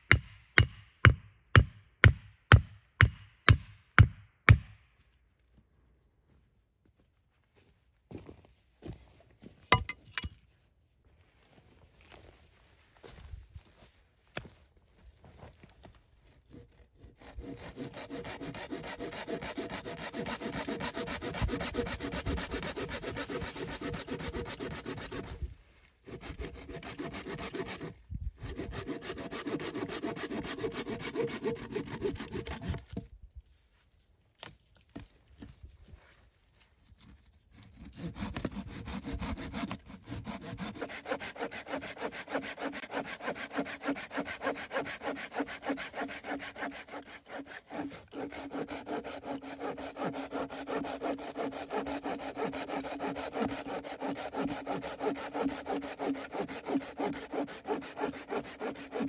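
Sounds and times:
hand saw cutting wood: 9.7s - 10.3s, 16.5s - 33.1s, 37.5s - 59.0s.

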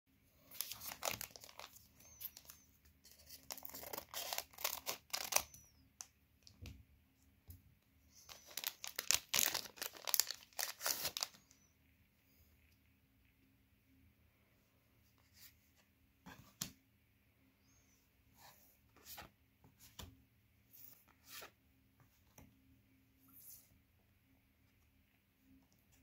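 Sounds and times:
plastic wrappers crinkling and tearing: 0.5s - 5.7s, 8.3s - 11.5s.

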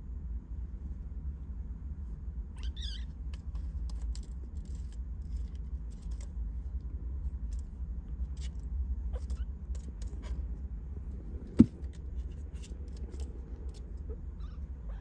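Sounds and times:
steady low rumble: 0.0s - 15.0s
kitten mewing: 14.1s - 15.0s.

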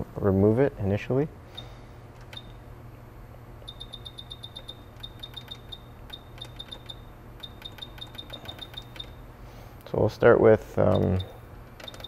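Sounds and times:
low steady hum: 0.0s - 12.0s
short electronic beeps: 3.7s - 9.2s.

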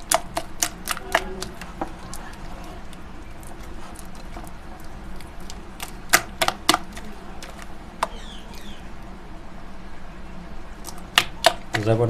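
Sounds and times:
batter mixed by hand in bowl: 0.0s - 8.6s.

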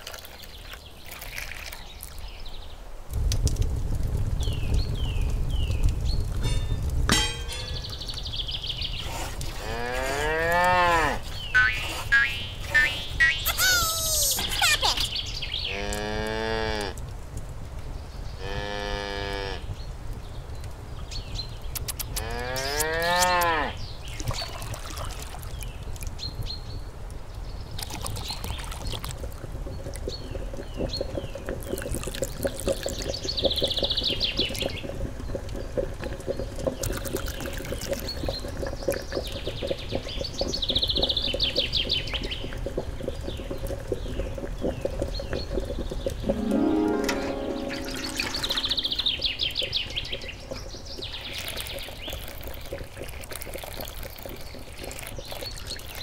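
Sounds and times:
birds chirping: 4.4s - 9.4s, 10.2s - 15.9s, 37.4s - 52.6s.

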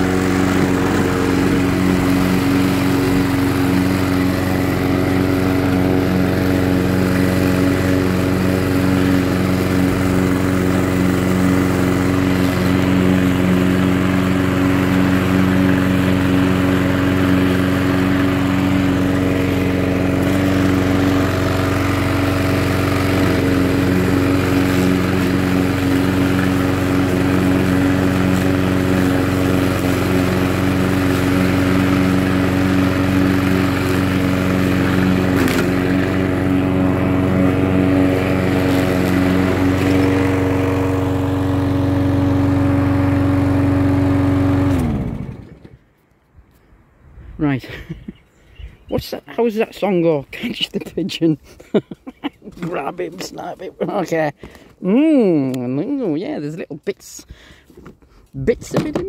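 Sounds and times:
lawnmower cutting long grass: 0.0s - 45.8s.

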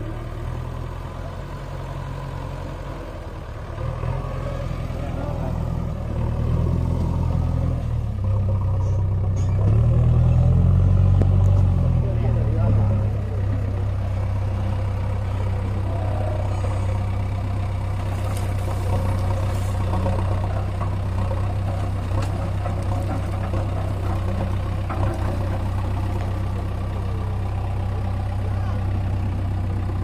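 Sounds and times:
backhoe loader working: 0.0s - 30.0s
tractor diesel engine idling: 0.0s - 30.0s
soil rattling into trailer: 17.9s - 26.5s.

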